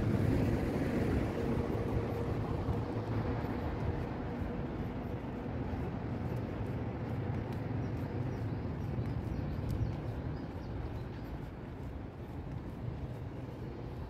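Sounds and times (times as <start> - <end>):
distant traffic rumble: 0.0 - 14.0
faint clicks: 7.0 - 13.8.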